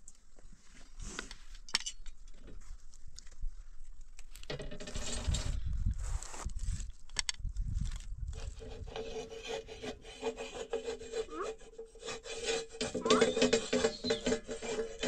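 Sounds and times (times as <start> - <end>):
rubbing and scraping clicks: 6.4 - 15.0.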